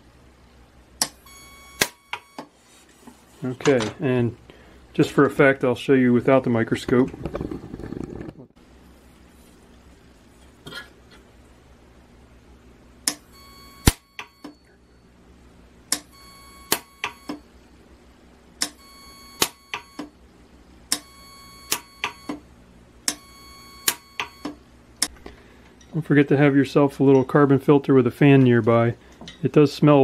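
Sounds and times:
welder discharge snaps: 1.0s - 1.2s, 1.8s - 2.2s, 13.0s - 14.3s, 15.9s - 16.1s, 18.6s - 18.8s, 19.4s - 20.1s, 21.7s - 22.2s, 23.8s - 24.3s
faint high steady tone: 13.3s - 15.2s.

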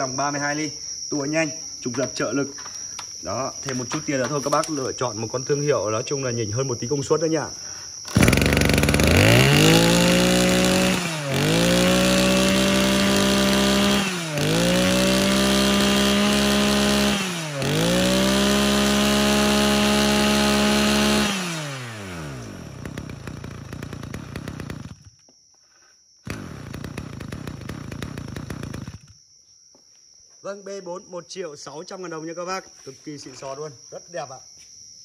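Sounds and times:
brush cutter engine revving: 8.1s - 25.1s, 26.3s - 29.1s.

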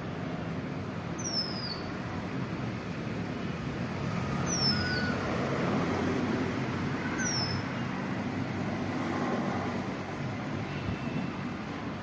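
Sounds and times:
road traffic rumble: 0.0s - 12.0s
high falling bird whistles: 1.2s - 1.8s.

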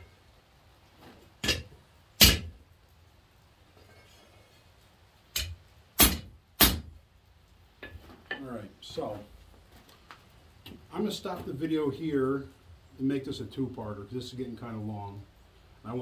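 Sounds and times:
hammer striking metal on anvil: 1.4s - 2.5s, 5.4s - 6.8s.

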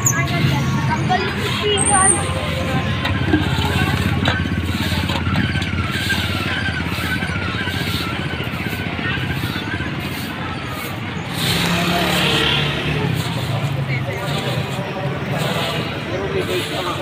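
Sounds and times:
small engine idling: 2.8s - 10.3s.

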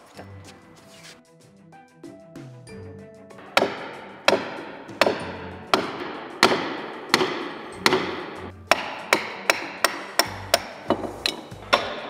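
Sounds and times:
hammer striking nails: 3.4s - 12.0s.

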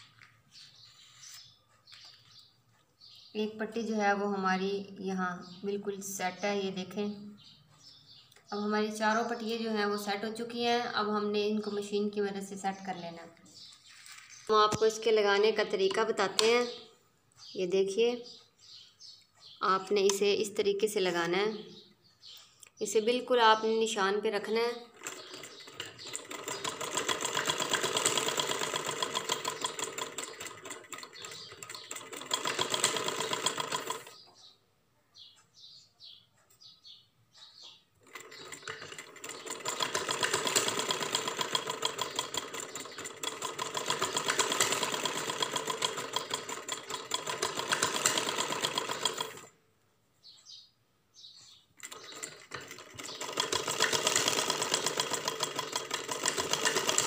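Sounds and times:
sewing machine rattling: 24.8s - 34.2s, 38.0s - 49.6s, 51.8s - 57.0s.

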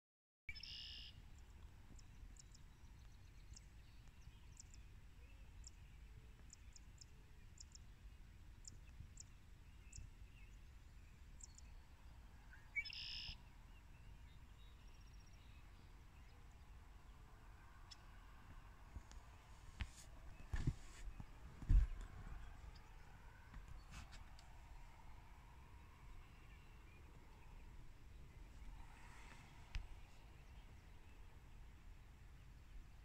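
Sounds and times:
faint high bird chirps: 0.5s - 1.2s, 8.6s - 16.4s.

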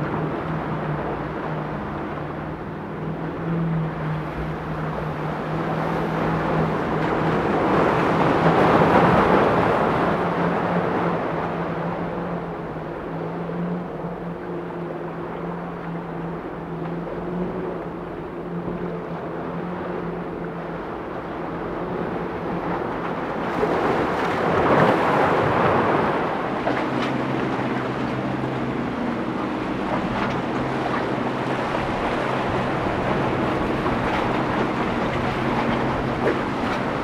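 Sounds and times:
boat engines running: 0.0s - 37.0s
waves and spray: 0.0s - 37.0s
wind on microphone: 19.8s - 37.0s.

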